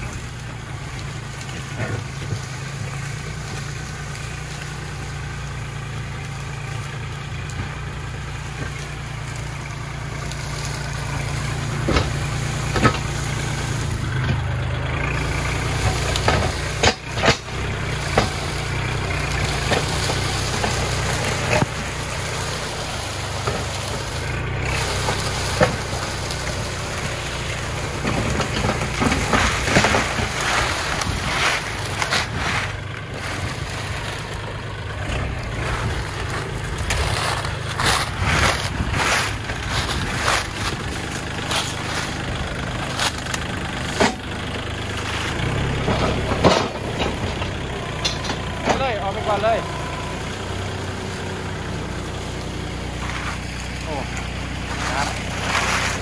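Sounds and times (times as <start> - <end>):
brush cracking and knocking: 0.0 - 56.0
tractor diesel engine running: 0.0 - 56.0.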